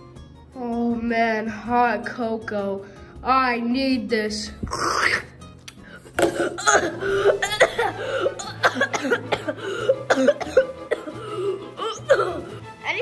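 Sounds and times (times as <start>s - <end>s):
person coughing and choking: 6.1s - 12.6s.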